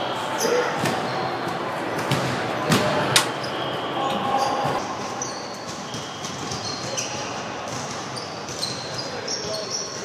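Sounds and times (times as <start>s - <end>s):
racquetball hitting racquet and walls: 0.4s - 3.5s, 4.6s - 9.7s
sneaker squeaks on hardwood floor: 2.1s - 10.0s.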